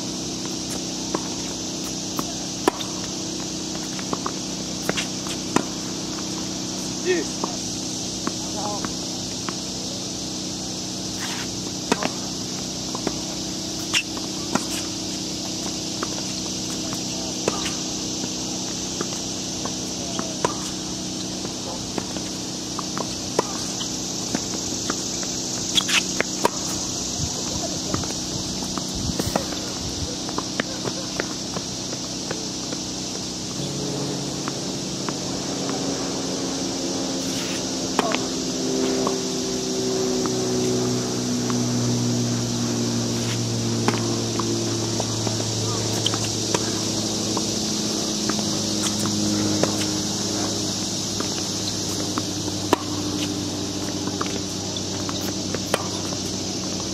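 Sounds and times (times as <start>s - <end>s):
steady high hiss: 0.0s - 56.9s
tennis racket hitting ball: 0.1s - 56.9s
low hum: 11.6s - 56.9s
distant ball bouncing and hits: 11.8s - 18.4s, 19.0s - 27.2s, 38.0s - 38.3s, 43.7s - 56.3s.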